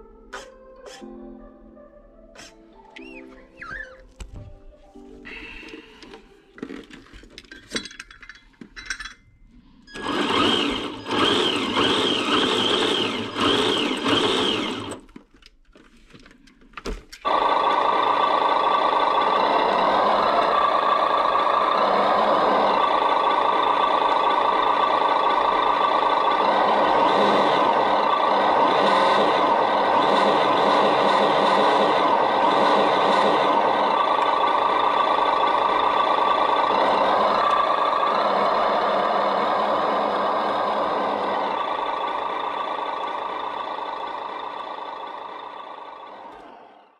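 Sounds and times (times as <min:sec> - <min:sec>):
simulated truck engine idling: 0:17.2 - 0:46.9.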